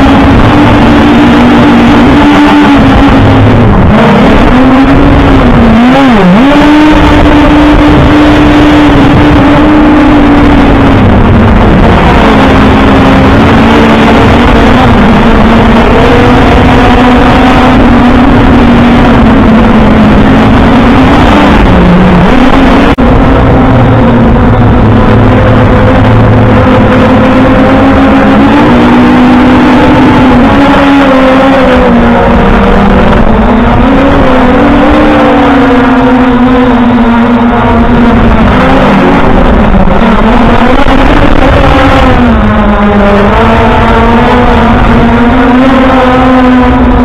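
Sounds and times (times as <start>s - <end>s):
drone propeller motors whining: 0.0s - 47.0s.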